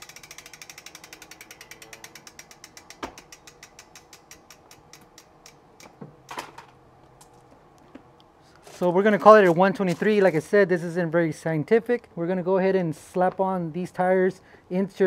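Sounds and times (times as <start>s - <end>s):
bicycle freehub ratchet clicking: 0.0s - 5.9s.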